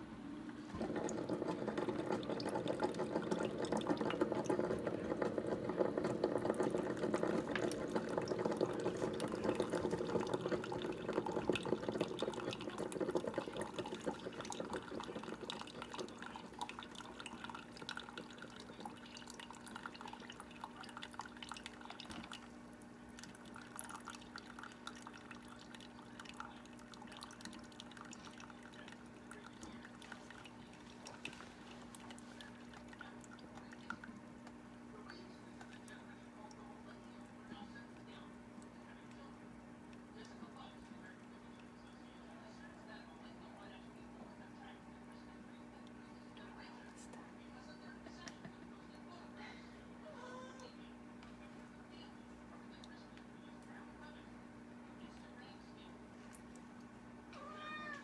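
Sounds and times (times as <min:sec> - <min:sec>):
coffee maker humming: 0:00.0 - 0:42.9
coffee pouring onto ice: 0:00.7 - 0:22.4.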